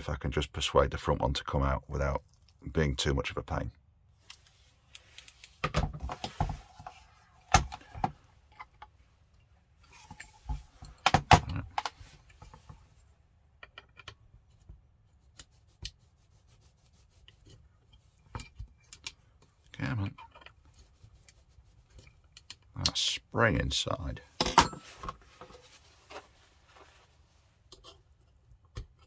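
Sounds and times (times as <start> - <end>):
clicks and knocks of rifle parts: 4.2 - 12.9, 13.6 - 14.7, 18.2 - 20.7.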